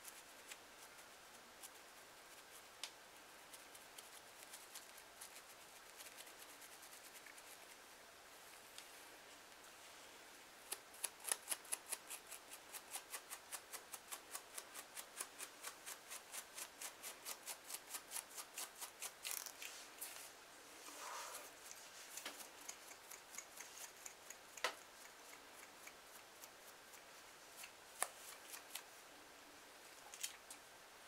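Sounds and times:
comb scraping scalp: 3.5 - 7.8, 10.7 - 29.0.

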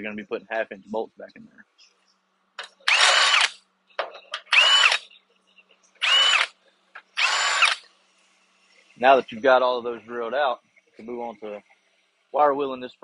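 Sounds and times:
cordless drill drilling steel: 2.8 - 3.6, 4.5 - 5.0, 6.0 - 6.6, 7.2 - 7.9.

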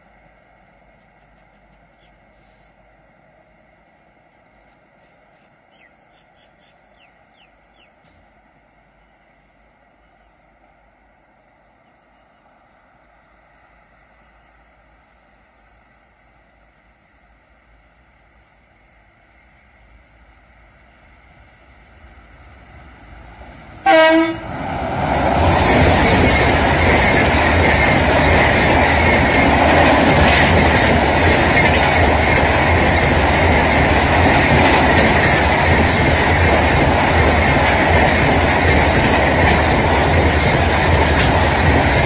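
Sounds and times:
train rumbling over steel bridge: 0.0 - 42.0
locomotive horn blast: 23.8 - 24.6
wheels clicking over rail joints: 25.2 - 42.0.

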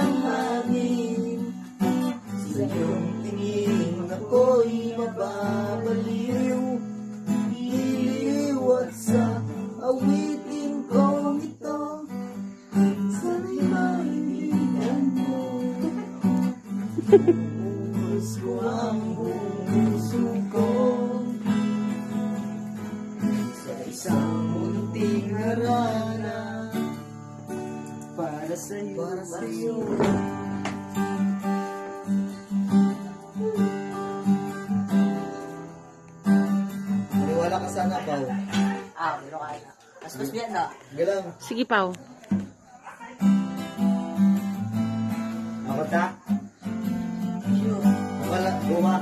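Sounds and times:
person singing: 0.0 - 21.5, 23.4 - 27.0, 28.2 - 30.4, 47.4 - 49.0
acoustic guitar strumming: 0.0 - 39.2, 43.2 - 49.0
sharp knock: 29.8 - 30.8.

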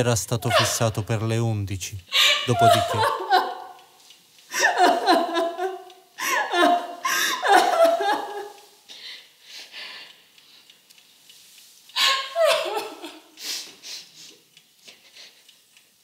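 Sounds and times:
woman sobbing and wailing: 0.4 - 1.1, 2.1 - 3.8, 4.5 - 8.6, 12.0 - 13.3.

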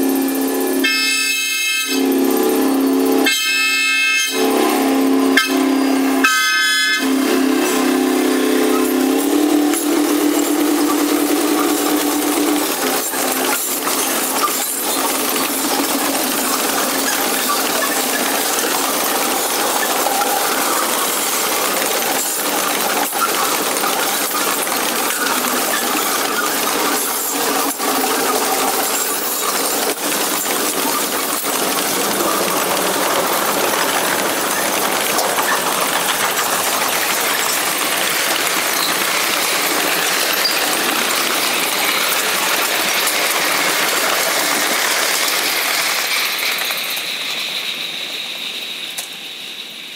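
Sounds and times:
train air horn: 0.2 - 12.4
train wheels clattering on rails: 0.8 - 49.9.

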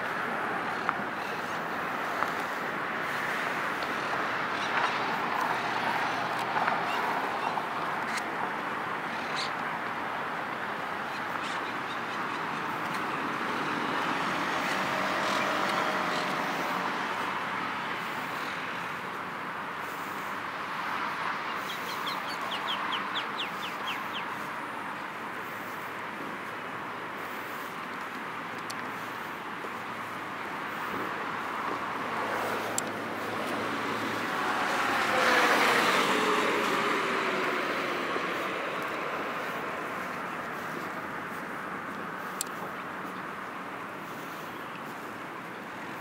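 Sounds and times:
city traffic hum: 0.0 - 46.0.

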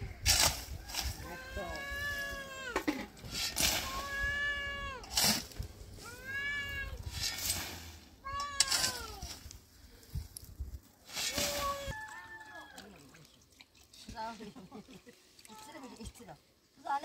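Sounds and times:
shovel scraping stony ground: 0.2 - 1.8, 2.8 - 4.4, 5.0 - 9.7, 11.0 - 12.0
cat meowing: 1.2 - 2.8, 3.8 - 5.1, 6.0 - 7.1.

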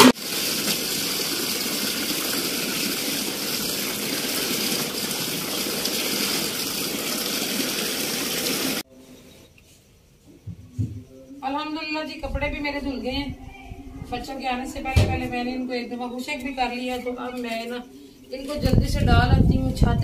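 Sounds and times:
tap water running into basin: 0.0 - 8.8.

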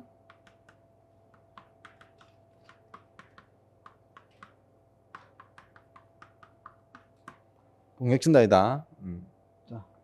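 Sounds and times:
chalk tapping on a blackboard: 0.0 - 7.6.

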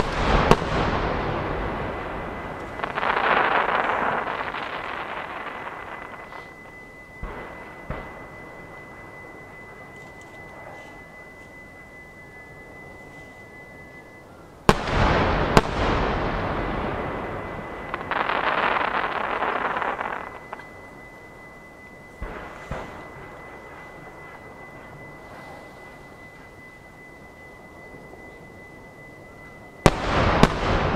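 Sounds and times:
rumbling echo: 0.0 - 10.8, 14.7 - 26.5
crackling of firework stars: 0.0 - 30.9.

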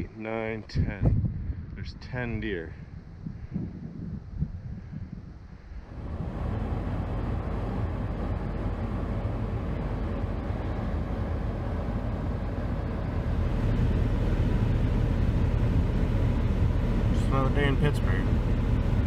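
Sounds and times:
vehicle engine drone: 5.3 - 19.0
road noise: 5.5 - 19.0.

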